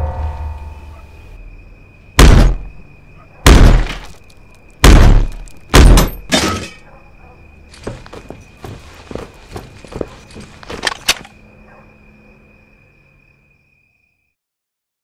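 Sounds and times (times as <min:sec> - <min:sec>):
heavy thuds on wooden door: 0:04.8 - 0:06.3
light footsteps: 0:07.7 - 0:11.3.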